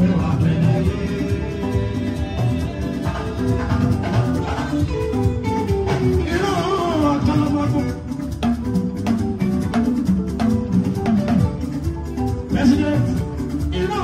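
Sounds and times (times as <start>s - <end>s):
person singing: 0.0s - 8.2s
electric guitars: 0.0s - 14.0s
talking drum and percussion: 0.0s - 14.0s.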